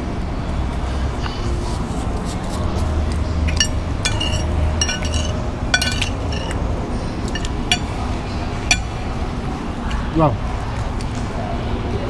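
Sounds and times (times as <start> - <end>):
low background hum: 0.0 - 11.6
metal spoon clinking on plate: 3.5 - 6.6, 7.3 - 8.1, 8.7 - 9.1.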